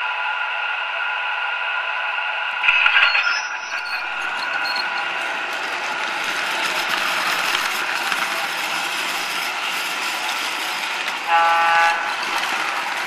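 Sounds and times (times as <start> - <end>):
model train running on track: 0.0 - 13.0
model train horn blast: 11.3 - 12.2.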